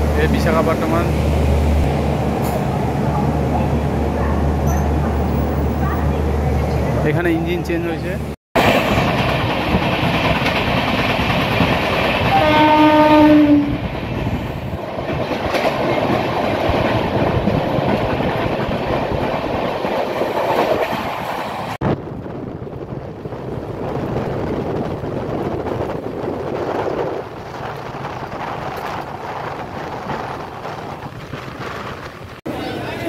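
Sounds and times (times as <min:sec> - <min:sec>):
passing train: 0:00.0 - 0:33.0
train wheels rumbling on track: 0:00.0 - 0:33.0
train horn: 0:12.3 - 0:13.8.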